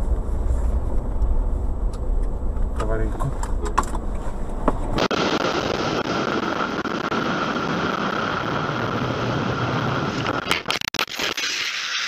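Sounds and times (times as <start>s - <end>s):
road rumble inside a car: 0.0s - 5.0s.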